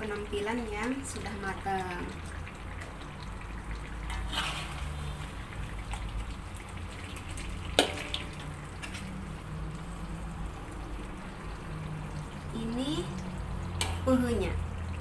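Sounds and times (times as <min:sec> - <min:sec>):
spatula scraping in wok: 0:04.1 - 0:05.5.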